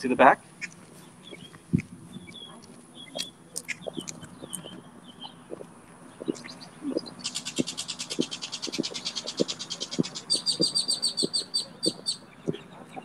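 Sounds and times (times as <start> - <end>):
birds chirping: 0.0 - 13.0
footsteps on concrete: 0.7 - 4.8, 5.4 - 12.1.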